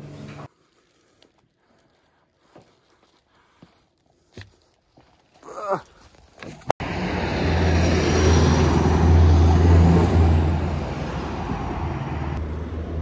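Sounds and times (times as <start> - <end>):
heavy vehicle driving past: 6.8 - 13.0.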